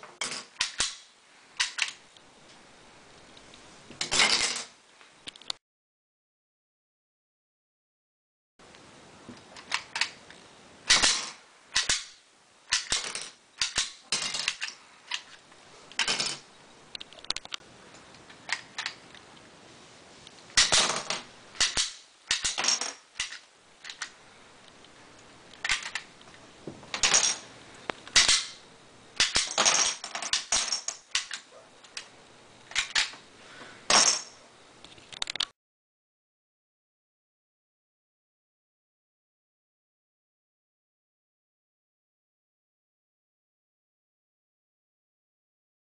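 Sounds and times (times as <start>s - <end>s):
toy pistol plastic clacks: 25.6s - 26.1s, 31.1s - 32.1s.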